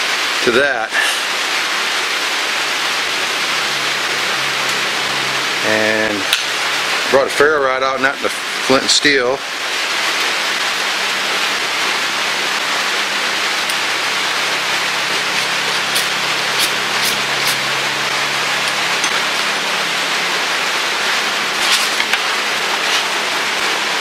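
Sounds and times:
rain on a roof: 0.0 - 24.0
ferro rod scraping: 15.1 - 17.7, 21.5 - 23.2.

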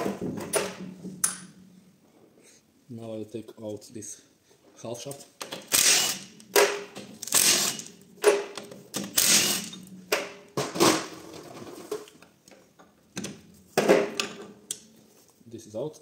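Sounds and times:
impact wrench rattling bursts: 5.4 - 9.9.

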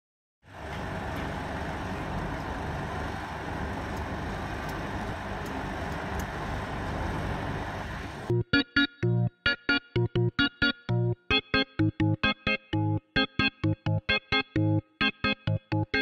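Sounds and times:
traffic rumble: 0.4 - 8.3.

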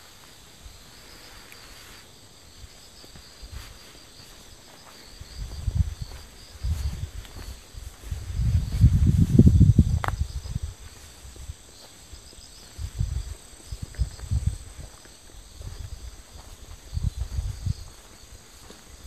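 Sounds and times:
insects chirring: 0.0 - 19.0
low rumbling microphone noise: 5.4 - 11.7.

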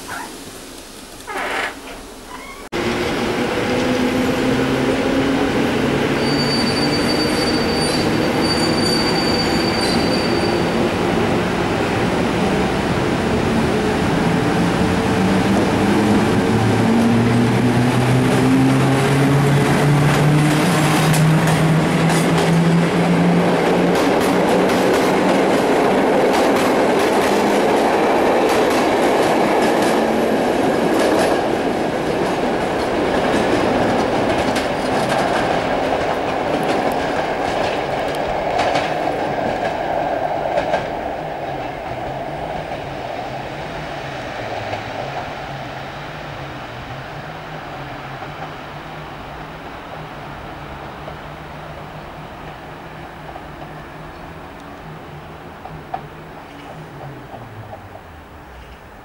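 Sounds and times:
train wheel clacks: 18.0 - 42.9.

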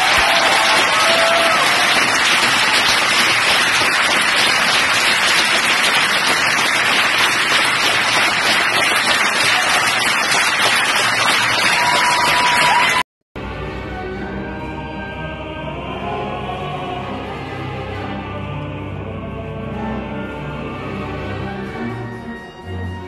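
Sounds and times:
large audience applauding: 0.0 - 13.0.

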